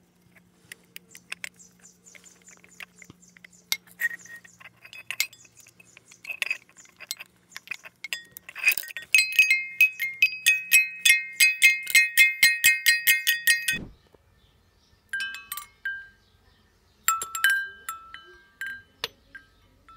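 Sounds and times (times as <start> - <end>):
cowbells clanging: 3.7 - 13.8.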